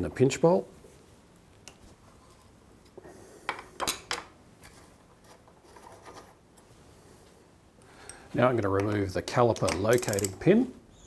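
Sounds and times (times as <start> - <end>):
metal-on-metal handling: 8.1 - 10.5.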